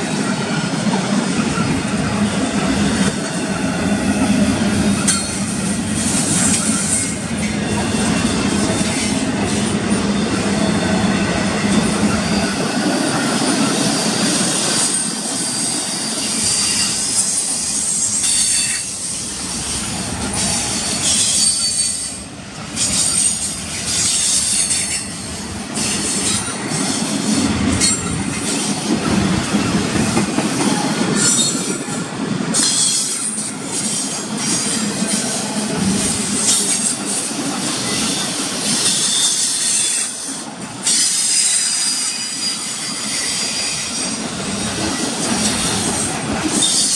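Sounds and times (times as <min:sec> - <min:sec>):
steel wheels rumbling on rail: 0:00.0 - 0:46.9
high-pitched wheel squeal: 0:13.3 - 0:22.2.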